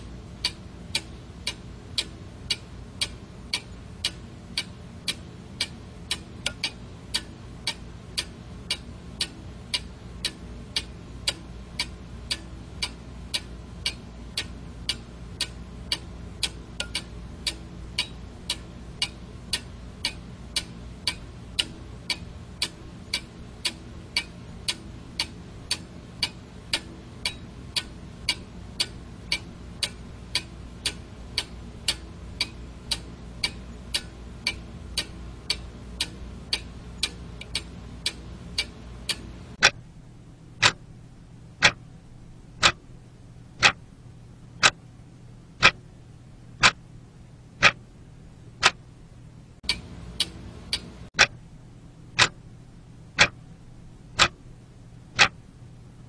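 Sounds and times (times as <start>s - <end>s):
steady low hum: 0.0s - 56.0s
alarm clock ticking: 0.4s - 39.8s, 41.6s - 41.8s, 42.6s - 42.8s, 49.6s - 51.3s, 53.2s - 53.4s.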